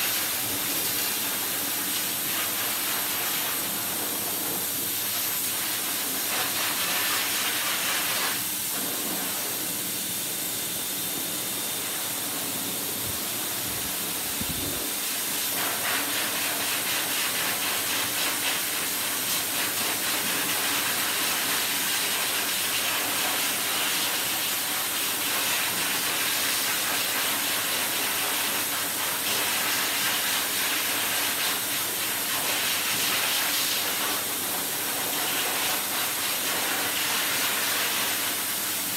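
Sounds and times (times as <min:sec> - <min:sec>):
blower dryer air rushing: 0:00.0 - 0:38.9.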